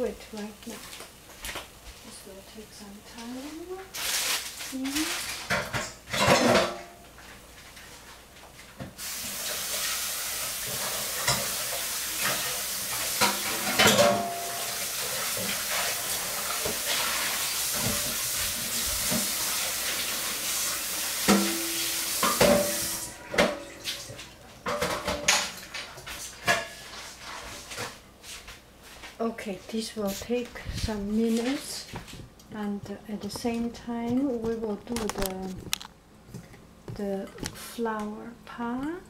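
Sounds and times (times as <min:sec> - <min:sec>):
crepe sizzling in a pan: 0:03.4 - 0:05.7, 0:07.6 - 0:23.2
dishes and utensils clinking: 0:05.0 - 0:07.0, 0:10.7 - 0:11.6, 0:13.1 - 0:17.2, 0:21.2 - 0:27.9.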